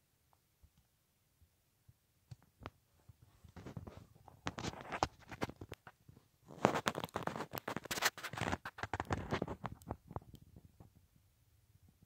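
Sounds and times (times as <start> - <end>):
scratching and crackling clicks: 2.3 - 11.1.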